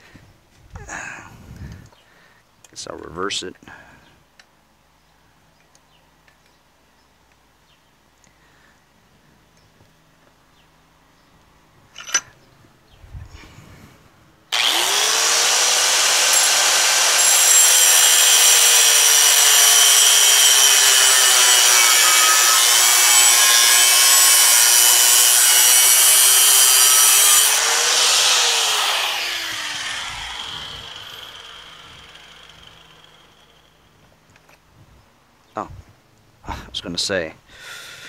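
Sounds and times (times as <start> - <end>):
angle grinder cutting metal: 14.5 - 33.9.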